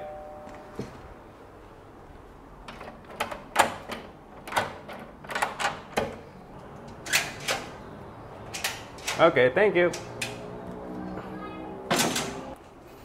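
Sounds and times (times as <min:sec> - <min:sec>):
door unlatching and opening: 0:02.6 - 0:07.8, 0:08.4 - 0:10.4, 0:11.9 - 0:12.6.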